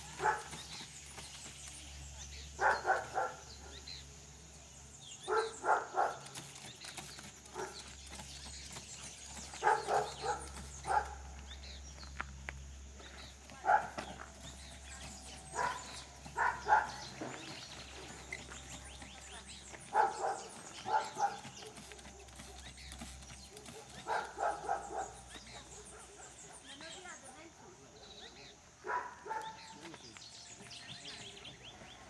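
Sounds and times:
dog barking: 0:00.2 - 0:00.5, 0:02.6 - 0:03.8, 0:05.3 - 0:06.2, 0:07.6 - 0:07.8, 0:09.6 - 0:11.3, 0:13.6 - 0:14.0, 0:15.5 - 0:17.2, 0:19.9 - 0:22.5, 0:23.5 - 0:26.7, 0:28.8 - 0:29.8.

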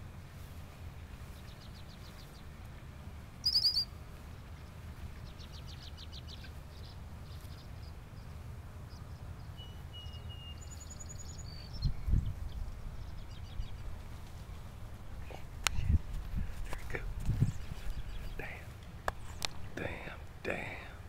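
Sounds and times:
low steady rumble: 0:00.0 - 0:21.0
songbirds chirping and trilling: 0:00.0 - 0:21.0.

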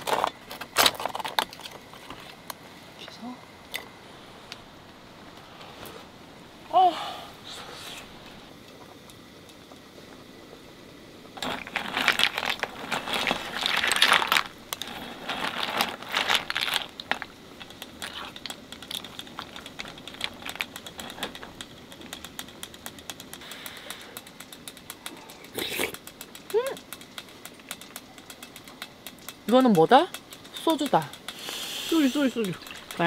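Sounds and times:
soup bubbling in pot: 0:08.1 - 0:29.5, 0:30.1 - 0:33.0
clam shells clinking: 0:11.4 - 0:33.0.

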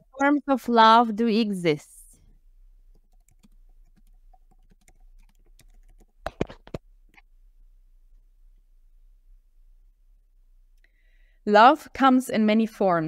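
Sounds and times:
computer keyboard typing: 0:03.0 - 0:06.8.

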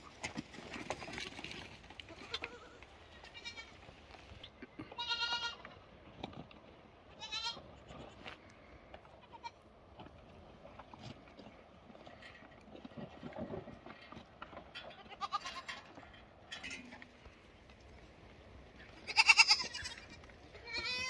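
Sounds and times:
goat kids bleating: 0:02.1 - 0:03.8, 0:04.8 - 0:05.8, 0:07.2 - 0:08.4, 0:09.1 - 0:09.6, 0:14.9 - 0:15.9, 0:18.9 - 0:21.0.

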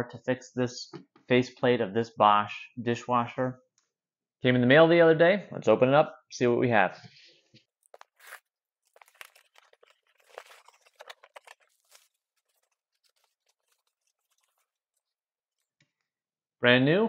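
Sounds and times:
packaging crinkling: 0:07.8 - 0:15.8.

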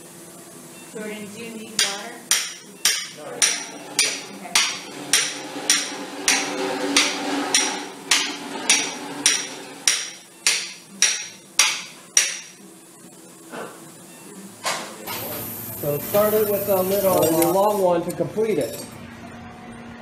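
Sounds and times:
mallet striking metal blade: 0:01.8 - 0:12.6.

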